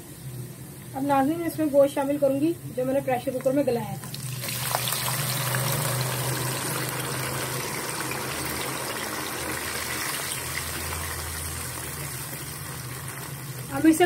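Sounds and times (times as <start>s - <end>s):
meat sizzling in hot oil: 3.0s - 14.0s.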